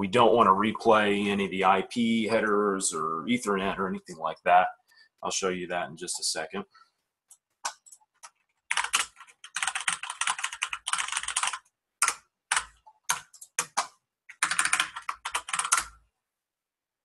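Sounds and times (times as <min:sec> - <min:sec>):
typing on a keyboard: 0:07.3 - 0:16.0.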